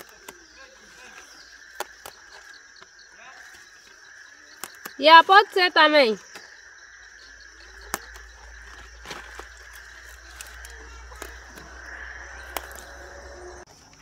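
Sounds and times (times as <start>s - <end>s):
crickets chirring: 0.0s - 14.0s
low rumble: 9.8s - 13.7s.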